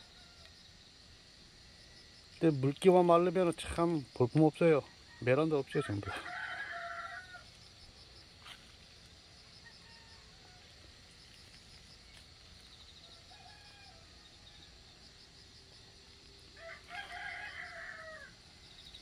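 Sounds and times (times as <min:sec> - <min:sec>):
rooster crowing: 0:04.8 - 0:07.5, 0:09.6 - 0:11.0, 0:13.0 - 0:15.1, 0:16.4 - 0:18.5.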